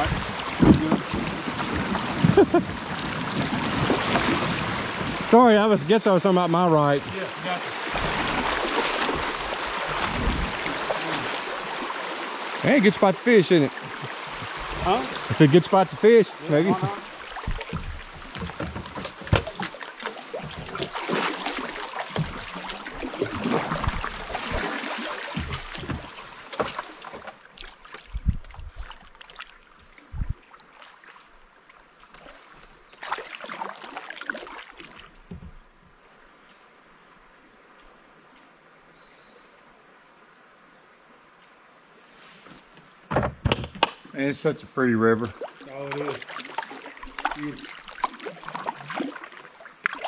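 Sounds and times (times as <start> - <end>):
paddle strokes splashing in water: 0.0 - 35.6, 45.1 - 50.0
insects buzzing: 0.0 - 50.0.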